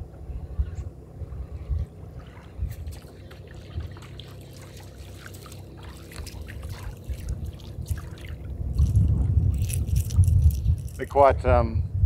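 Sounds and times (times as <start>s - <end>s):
low rumble: 0.0s - 12.0s
small waves lapping against hull: 0.4s - 9.3s.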